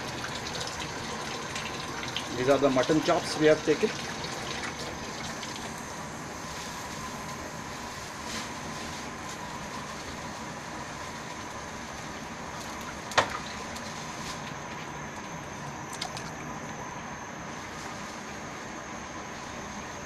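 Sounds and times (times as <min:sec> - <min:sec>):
steady hum and hiss: 0:00.0 - 0:20.0
faint high whine: 0:04.8 - 0:20.0.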